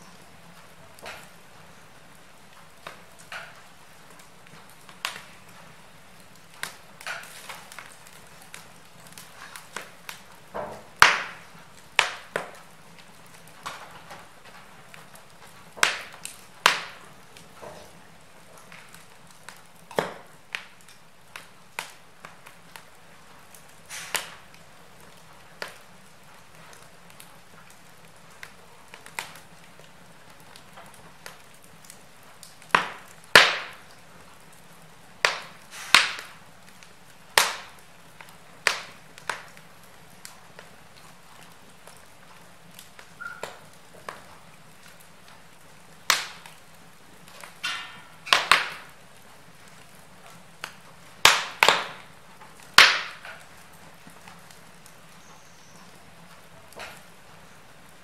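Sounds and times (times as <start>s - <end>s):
faint steady hiss: 0.0s - 58.0s
wood fire crackling: 0.0s - 58.0s.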